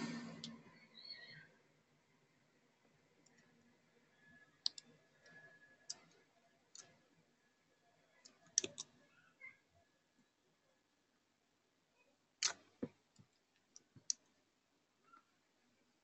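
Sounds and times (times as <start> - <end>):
keyboard and mouse clicks: 8.2 - 9.0.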